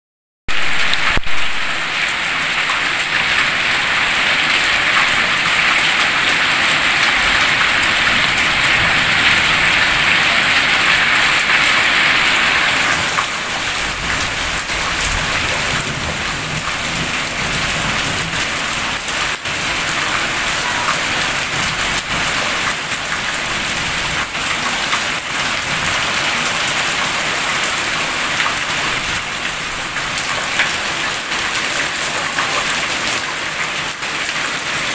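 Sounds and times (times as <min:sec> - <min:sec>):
heavy rain pouring: 0:00.5 - 0:34.9.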